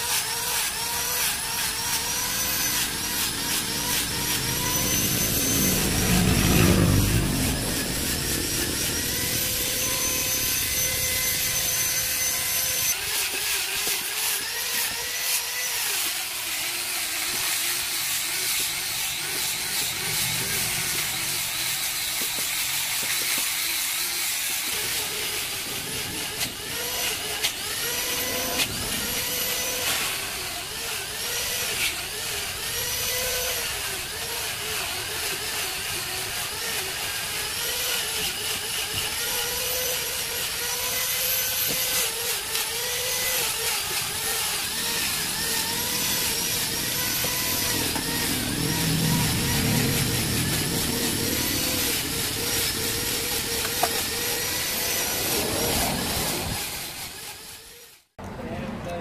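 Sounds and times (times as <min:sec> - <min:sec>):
power tool motor running: 0:00.0 - 0:58.1.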